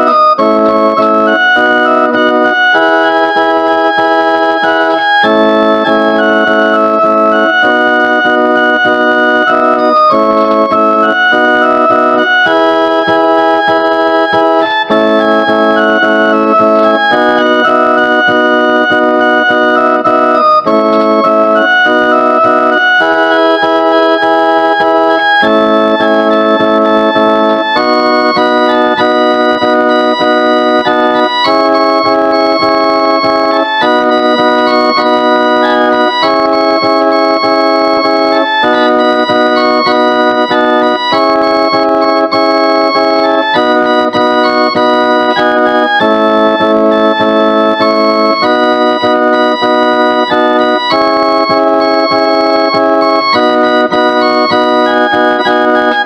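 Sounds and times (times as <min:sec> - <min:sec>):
organ-like keyboard chords: 0:00.0 - 0:56.0.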